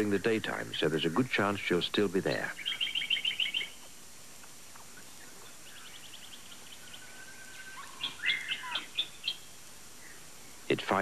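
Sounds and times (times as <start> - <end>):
birds trilling: 0.0 - 11.0
bird whistling: 2.5 - 3.9, 4.8 - 10.2
sharp bird chirps: 2.5 - 4.0, 4.7 - 10.6.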